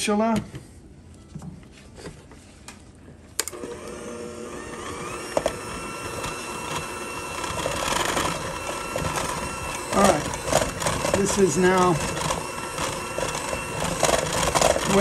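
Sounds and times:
electric hand mixer whine: 3.5 - 15.0.

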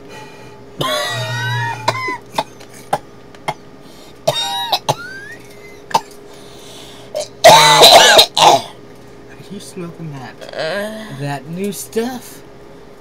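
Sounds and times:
person coughing: 0.8 - 3.6, 4.2 - 6.2, 7.2 - 8.8.

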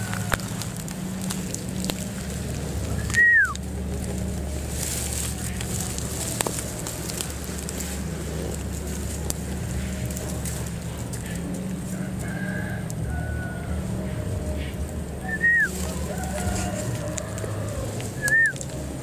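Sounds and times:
faint crackling: 0.0 - 19.0
steady low hum: 0.0 - 19.0
whistle-like call falling in pitch: 3.0 - 3.6.

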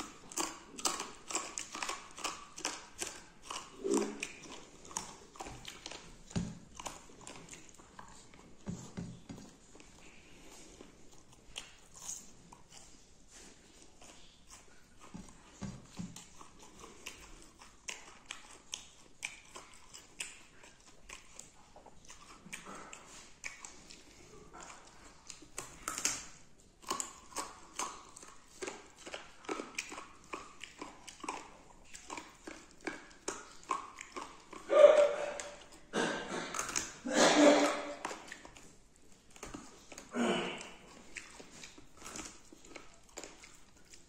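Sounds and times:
wet chewing and lip smacks: 0.0 - 44.0.

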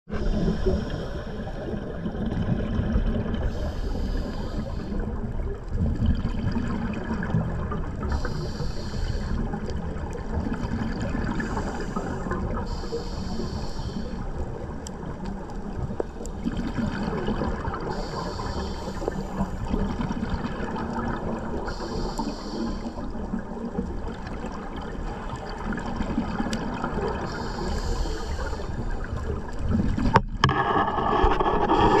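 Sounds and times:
underwater rumble and bubbles: 0.1 - 32.0
regulator breathing hiss: 0.2 - 1.7, 3.5 - 5.1, 8.1 - 9.5, 11.4 - 14.4, 17.9 - 19.7, 21.5 - 23.1, 27.2 - 29.2.

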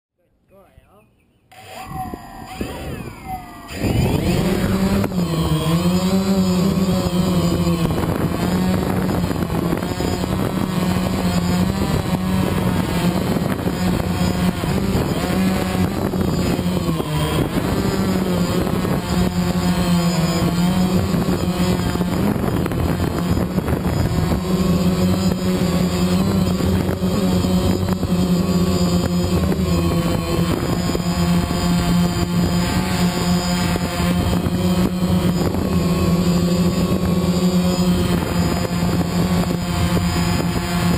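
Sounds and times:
quadcopter propellers buzzing: 1.5 - 40.9.

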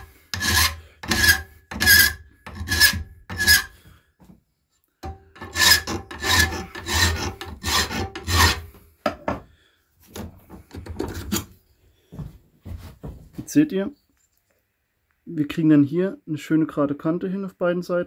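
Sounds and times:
hand file rasping on steel: 0.0 - 3.8, 5.0 - 8.8.

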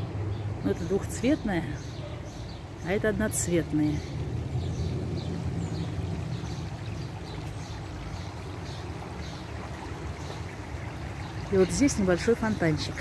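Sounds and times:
water trickling from fountain: 0.0 - 13.0
steady low rumble: 2.6 - 9.2.

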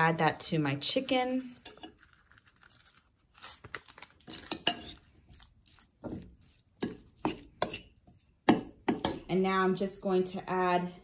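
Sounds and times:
metal spoon scraping ceramic bowl: 4.3 - 9.3.

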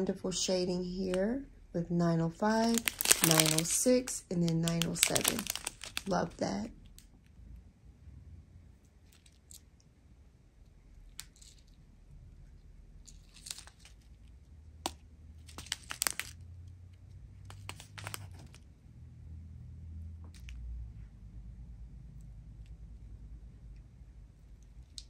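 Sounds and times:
plastic bags crinkling: 2.4 - 6.7, 15.5 - 16.4, 17.5 - 18.6.

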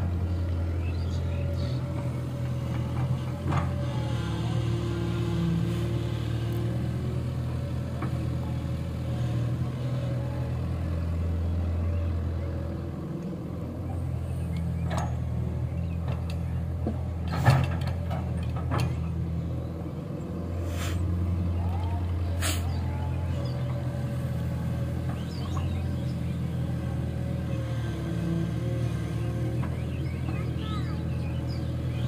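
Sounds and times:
diesel engines droning: 0.0 - 32.0.

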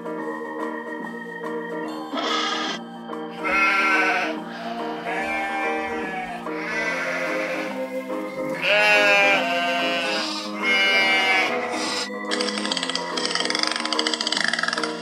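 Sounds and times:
background music: 0.0 - 15.0
alpaca calling: 2.1 - 2.8, 3.4 - 7.9, 8.5 - 12.1.

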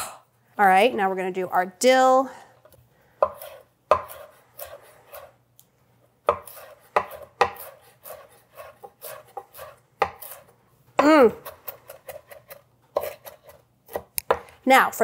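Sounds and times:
knife chopping on wooden board: 3.2 - 5.3, 6.2 - 10.4, 11.0 - 14.5.

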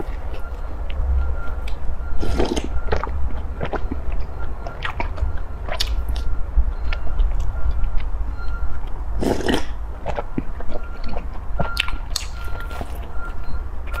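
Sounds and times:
biting and chewing bread: 0.0 - 14.0
steady low hum: 0.0 - 14.0.

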